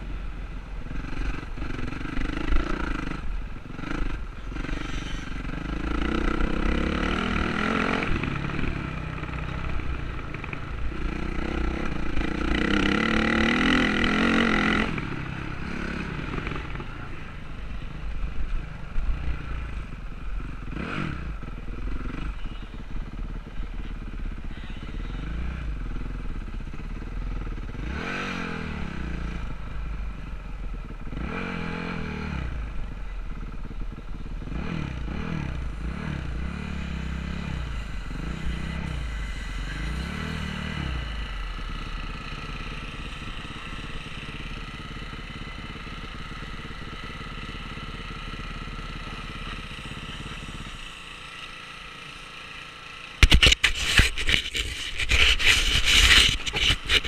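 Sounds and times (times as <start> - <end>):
dirt bike engines revving: 34.4 - 57.0
camera handling scraping and knocking: 53.2 - 57.0.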